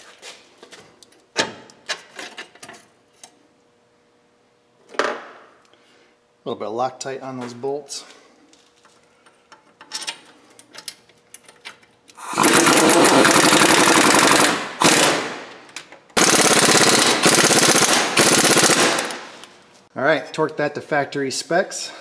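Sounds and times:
impact wrench hammering: 0:12.3 - 0:15.6.

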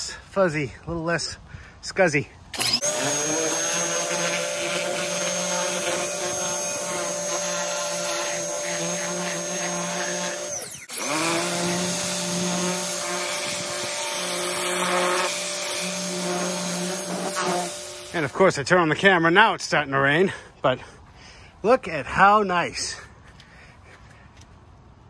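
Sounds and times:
pressure washer whining: 0:02.6 - 0:18.6.

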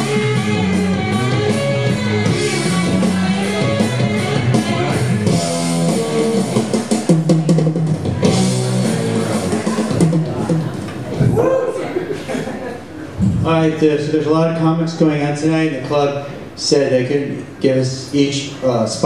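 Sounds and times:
rock music with guitar and drums: 0:00.0 - 0:10.9.

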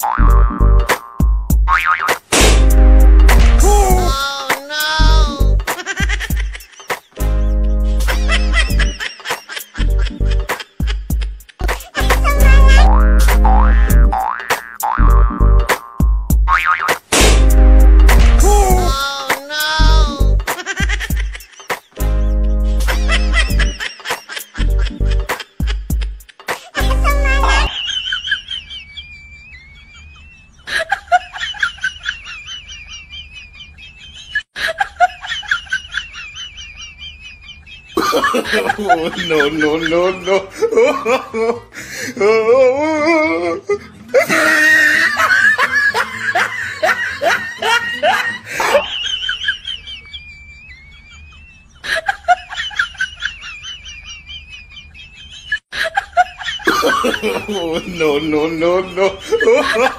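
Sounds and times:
high-pitched snickering laughter: 0:04.1 - 0:07.1, 0:08.0 - 0:14.4, 0:18.9 - 0:21.9, 0:22.9 - 0:41.6, 0:42.9 - 0:57.9, 0:59.0 - 0:59.9.

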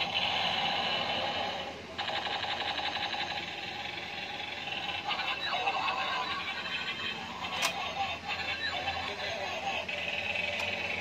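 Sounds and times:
toy electronic sound effects: 0:00.0 - 0:11.0.

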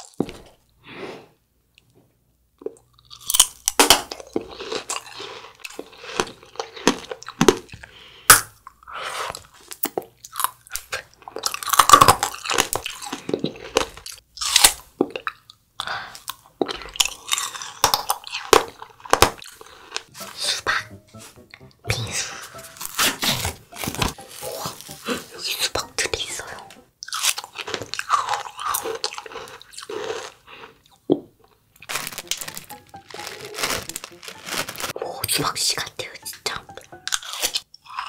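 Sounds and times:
person chewing watermelon: 0:02.6 - 0:08.1, 0:08.7 - 0:20.1, 0:27.0 - 0:31.2.

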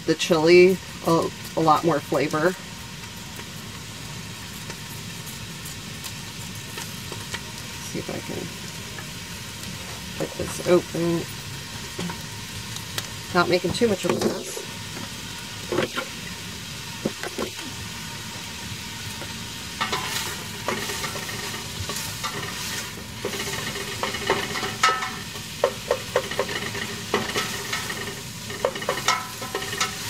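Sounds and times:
vegetables sizzling in oil: 0:00.0 - 0:30.0
spoon scraping and clicking on pot: 0:23.2 - 0:30.0.

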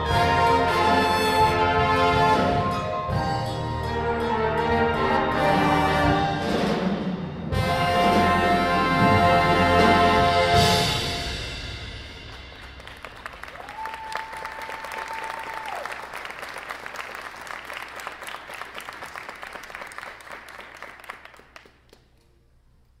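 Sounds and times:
audience applauding: 0:12.3 - 0:22.1.

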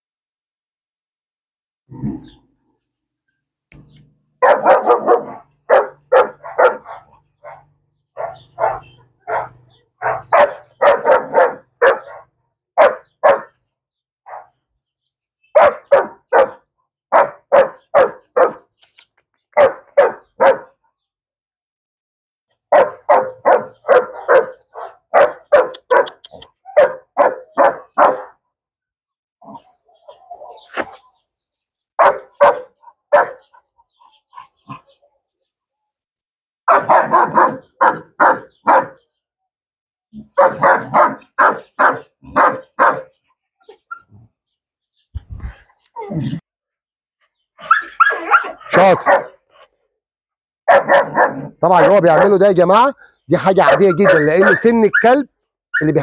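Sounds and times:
dog barking: 0:04.4 - 0:13.6, 0:14.2 - 0:14.6, 0:15.5 - 0:18.7, 0:19.6 - 0:20.8, 0:22.7 - 0:28.4, 0:32.0 - 0:35.0, 0:36.7 - 0:39.1, 0:40.2 - 0:43.2, 0:47.6 - 0:49.4, 0:50.6 - 0:52.4, 0:53.6 - 0:56.0.

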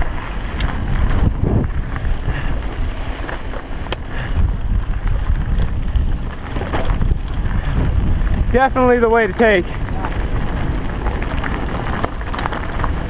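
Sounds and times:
bike clicks and rattles: 0:00.0 - 0:13.0
mountain bike rumbling on dirt: 0:00.0 - 0:13.0
wind buffeting microphone: 0:00.0 - 0:13.0.

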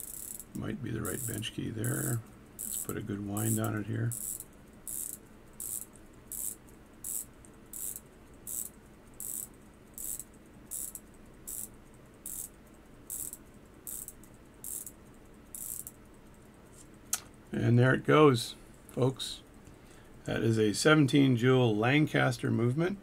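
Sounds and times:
watch winding ratchet clicks: 0:00.0 - 0:12.5, 0:13.1 - 0:16.0.

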